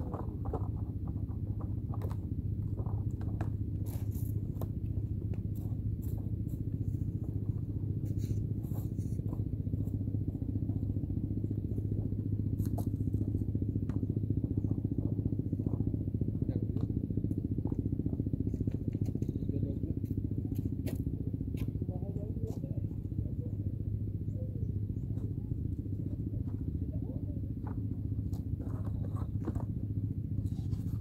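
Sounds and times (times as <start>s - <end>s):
engine humming: 0.0s - 31.0s
light clicks and scrapes: 27.6s - 31.0s.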